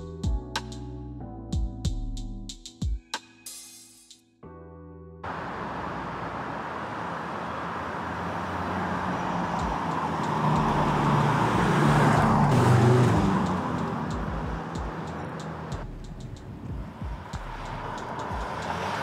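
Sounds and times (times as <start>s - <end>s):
car driving past: 5.3s - 15.9s, 16.5s - 19.0s.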